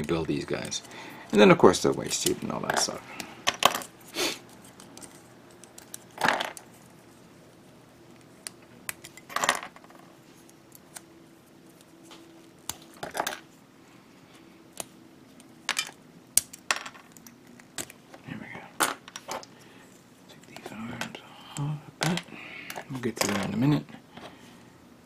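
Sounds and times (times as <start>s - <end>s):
plastic parts snapping: 15.7s - 18.0s.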